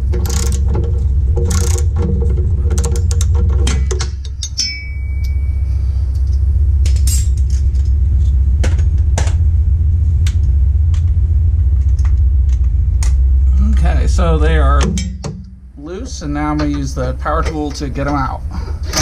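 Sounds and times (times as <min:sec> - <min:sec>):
low rumble: 0:00.0 - 0:19.0
ratchet wrench clicking: 0:00.2 - 0:00.6, 0:01.4 - 0:01.9
ringing metal clink: 0:04.2 - 0:07.6.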